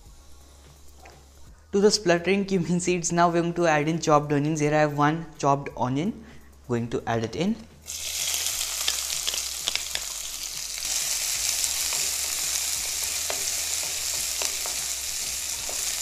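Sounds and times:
onion sizzling in hot oil: 7.8s - 16.0s
oil crackles: 7.9s - 16.0s
spatula stirring: 7.9s - 16.0s.

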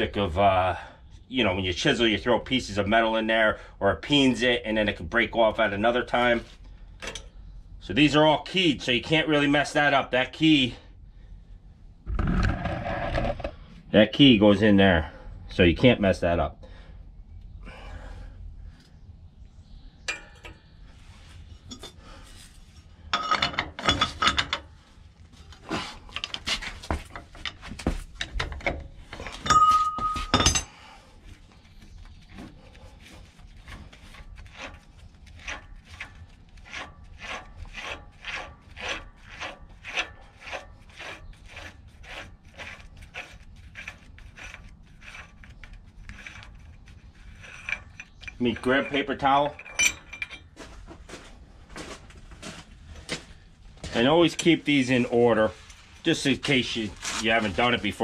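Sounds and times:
steel clinking and scraping: 20.0s - 20.6s, 21.4s - 24.8s, 26.1s - 30.8s, 32.3s - 50.6s.

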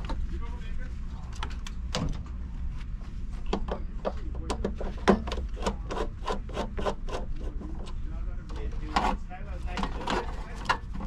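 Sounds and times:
screwdriver scraping screw: 5.4s - 7.8s.

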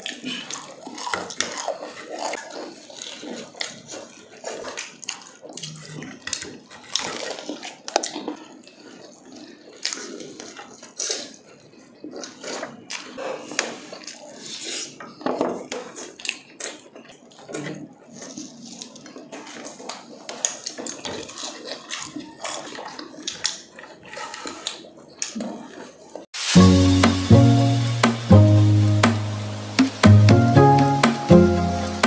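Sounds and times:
chewing and lip smacks: 0.0s - 15.0s, 15.7s - 25.9s
crispy chicken crunching: 0.0s - 15.0s, 15.6s - 26.1s.

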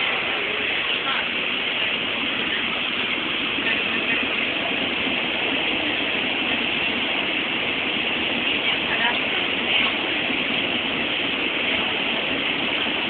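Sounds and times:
train running rumble: 0.0s - 13.0s.

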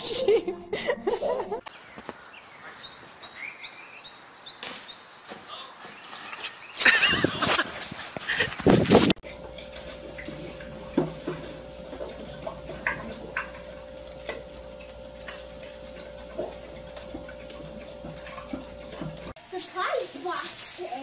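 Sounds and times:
faint hum: 9.2s - 19.4s.

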